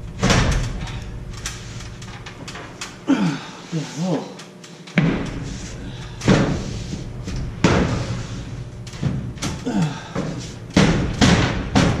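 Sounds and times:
drywall sheet thumping against framing: 10.2s - 12.0s.

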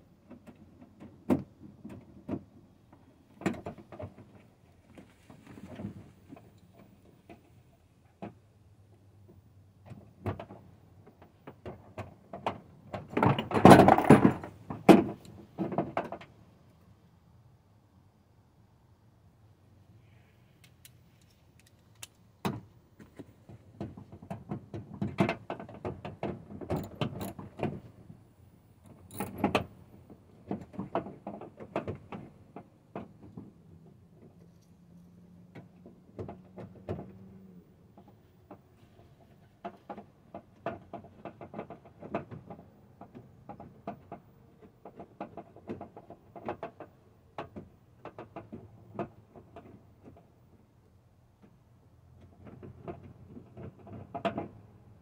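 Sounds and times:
parts and tools clicking and rattling: 9.8s - 16.3s, 20.6s - 28.1s, 28.8s - 50.3s, 52.2s - 54.6s.

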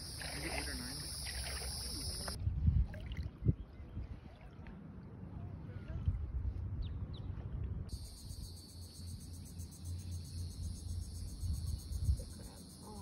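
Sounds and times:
insect chorus: 0.0s - 2.4s, 7.9s - 13.0s
wind rumble on microphone: 0.0s - 8.0s, 10.7s - 13.0s.

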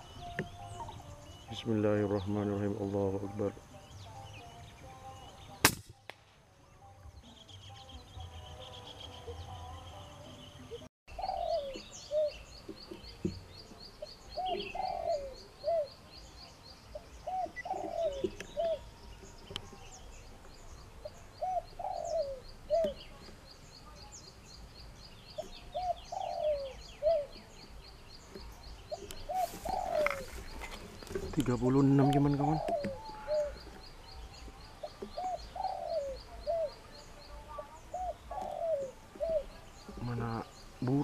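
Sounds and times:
doves cooing: 10.7s - 16.2s, 16.9s - 19.6s, 21.0s - 23.5s, 25.3s - 41.0s
high thin ticking bird call: 16.9s - 41.0s.

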